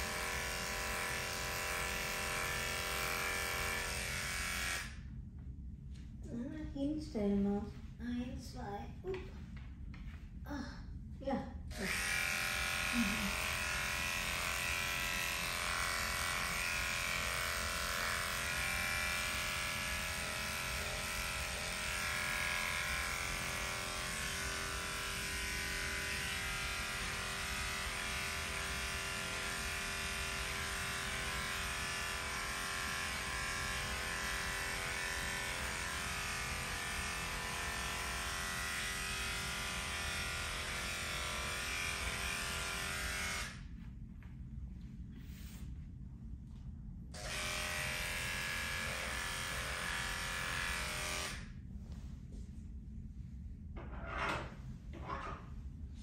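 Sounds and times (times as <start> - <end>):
electric clippers buzzing: 0.0 - 5.1, 11.7 - 43.7, 47.2 - 51.5.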